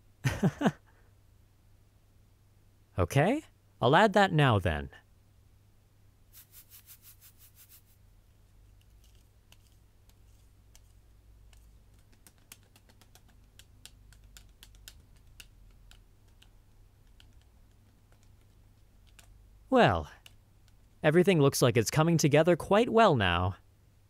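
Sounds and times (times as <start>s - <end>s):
utensil clicking in mixing bowl: 9.0s - 19.3s.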